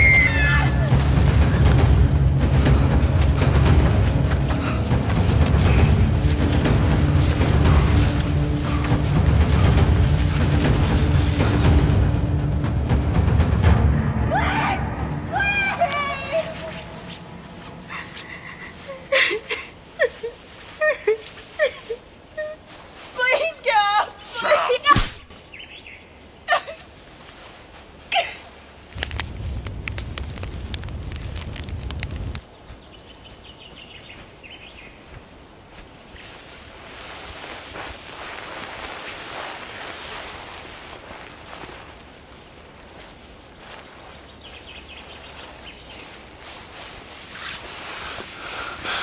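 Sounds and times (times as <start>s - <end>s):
footsteps through leaf litter: 0.0s - 12.3s, 22.4s - 24.3s, 27.0s - 32.4s, 35.7s - 49.0s
campfire crackling: 0.0s - 13.6s, 28.7s - 32.5s, 36.9s - 49.0s
low rumble: 0.0s - 19.1s, 29.0s - 32.4s
air and leaves hissing: 26.9s - 32.9s, 34.2s - 49.0s.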